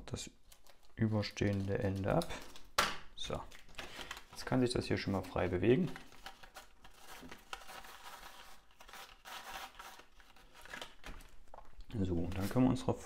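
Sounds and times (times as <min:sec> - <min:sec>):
cardstock rustling and scraping: 0:12.2 - 0:12.8.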